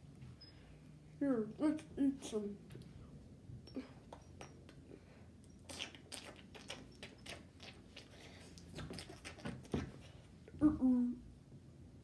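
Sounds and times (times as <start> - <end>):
mouth clicks and smacks: 5.4 - 10.1.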